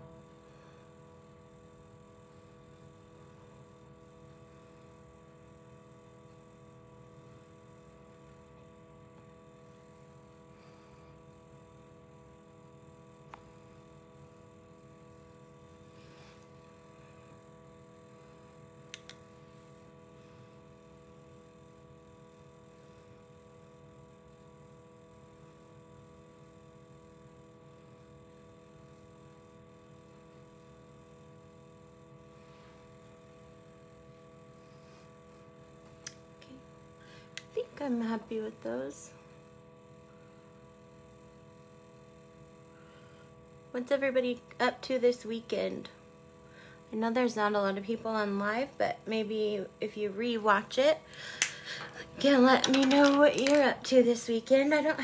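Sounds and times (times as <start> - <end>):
faint steady hum: 0.0 - 55.0
small clicks: 18.9 - 19.2.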